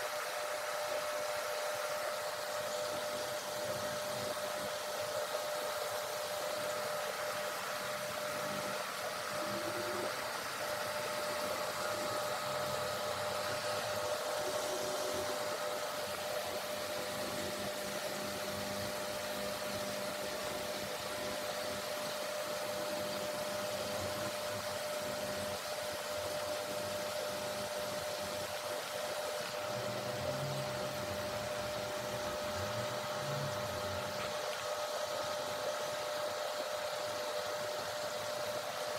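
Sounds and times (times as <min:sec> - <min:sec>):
steady mechanical hum: 0:00.0 - 0:38.9.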